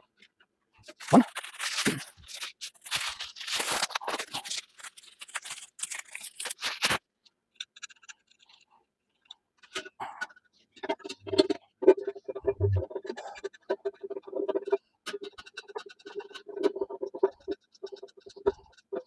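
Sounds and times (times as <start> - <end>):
packaging crinkling and rustling: 0.9 - 7.0.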